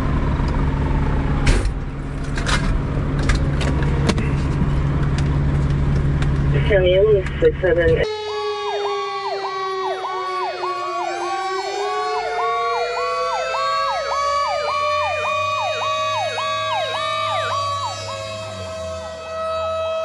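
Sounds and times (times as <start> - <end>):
slowly rising siren tone: 0.0 - 2.1, 8.0 - 20.0
electronic siren cycling fast: 8.0 - 20.0.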